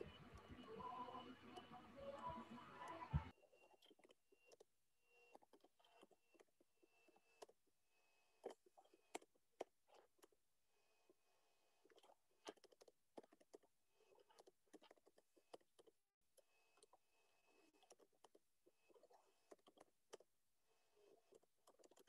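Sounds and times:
faint keyboard typing: 0:21.0 - 0:22.0.

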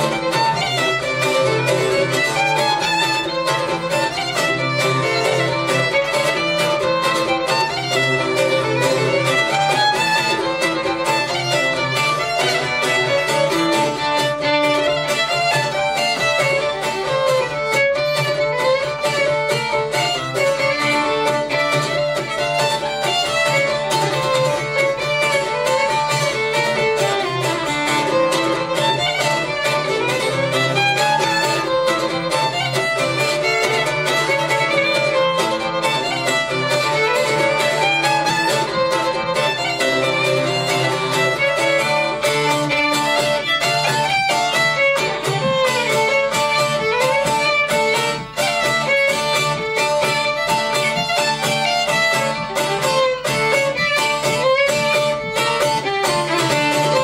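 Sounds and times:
fiddle playing polka: 0:00.0 - 0:57.0
plucked bouzouki: 0:00.0 - 0:57.0.

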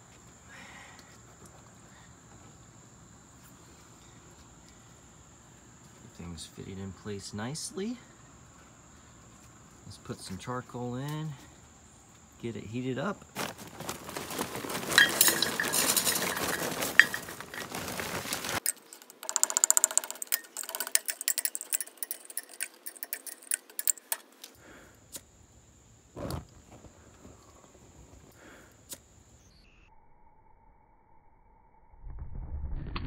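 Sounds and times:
charcoal pouring into metal drum: 0:13.4 - 0:18.7
charcoal clinking in metal drum: 0:14.0 - 0:24.3.

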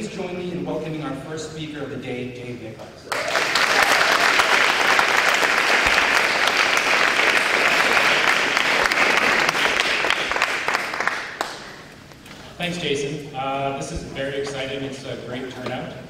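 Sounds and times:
audience applauding: 0:03.1 - 0:11.9.

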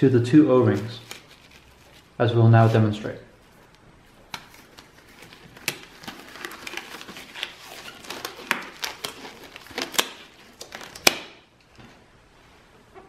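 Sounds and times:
packaging crinkling: 0:00.7 - 0:02.8, 0:03.4 - 0:11.5.

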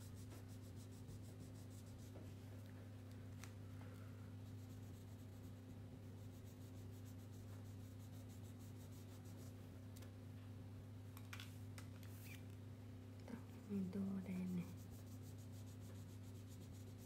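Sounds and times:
crayon rubbing on paper: 0:00.0 - 0:02.1, 0:14.3 - 0:17.0
steady low hum: 0:00.0 - 0:17.0.

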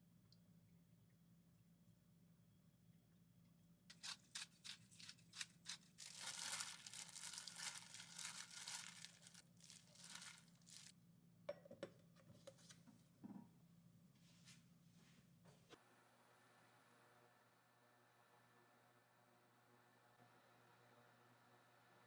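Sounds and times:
plastic glove crinkling: 0:03.9 - 0:10.9.

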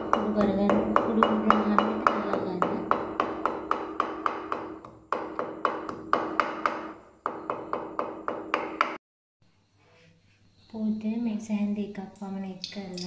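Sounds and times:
pestle pounding in wooden mortar: 0:00.0 - 0:09.0.

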